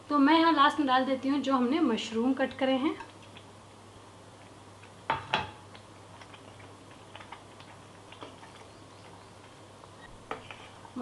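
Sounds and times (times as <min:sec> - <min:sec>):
wooden spatula stirring: 0:10.2 - 0:11.0.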